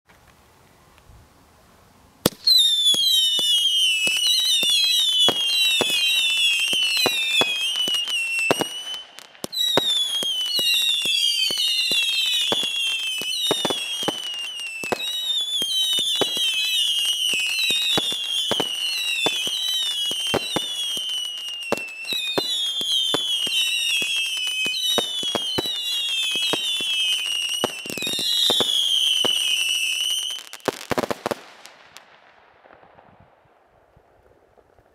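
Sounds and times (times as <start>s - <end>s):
firework launch cracks: 2.2s - 16.6s, 30.4s - 34.9s
crackling firework bursts: 2.2s - 34.9s
whistling firework tails: 2.2s - 34.9s.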